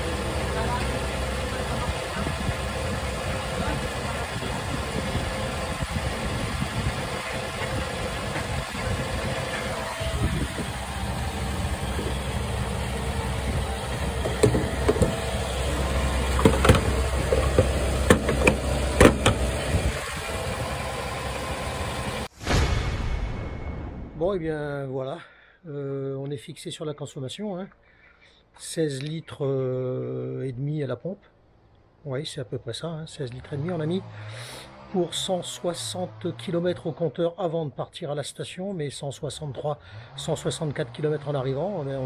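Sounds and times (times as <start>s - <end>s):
fuel pump humming: 0.0s - 22.3s.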